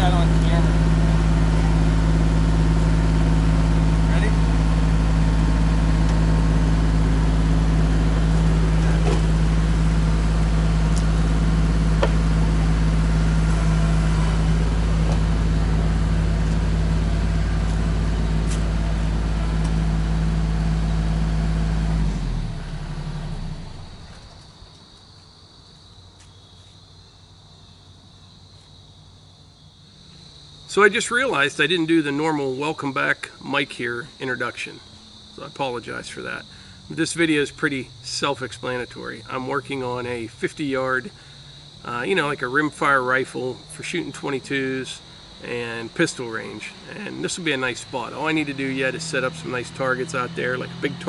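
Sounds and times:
tractor diesel engine running: 0.0s - 24.9s, 29.9s - 51.0s
high insect drone: 0.0s - 51.0s.

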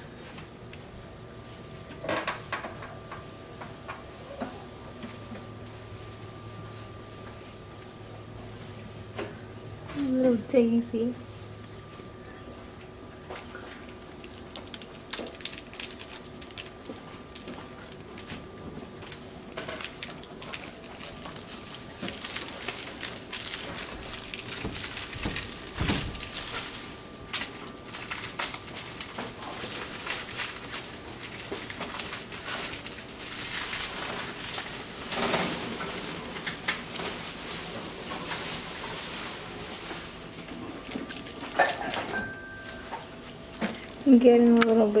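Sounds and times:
claws clicking and scrabbling: 13.6s - 37.2s
puppies scuffling on tile floor: 19.6s - 44.8s.

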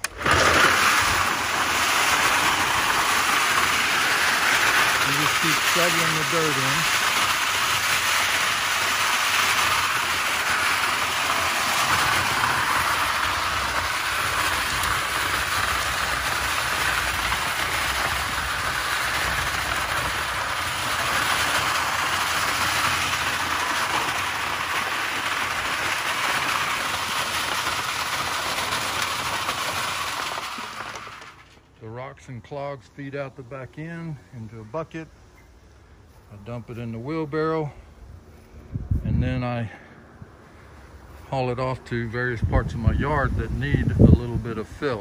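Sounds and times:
soil and rocks rattling in drum: 0.0s - 31.6s.

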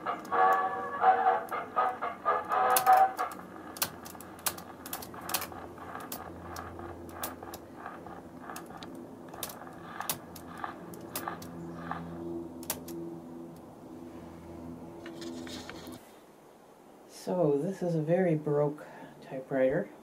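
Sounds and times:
typewriter keys clacking: 2.5s - 7.7s.

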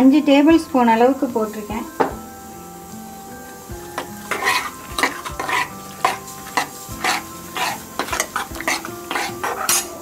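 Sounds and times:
steel ladle scraping pot: 4.0s - 10.0s.

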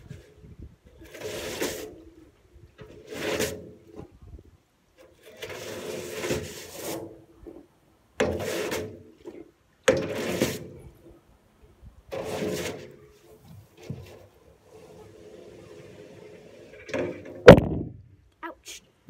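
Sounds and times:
brush scrubbing wheelbarrow tray: 1.0s - 2.1s, 2.8s - 4.0s, 5.0s - 7.6s, 8.2s - 10.8s, 12.1s - 17.1s.

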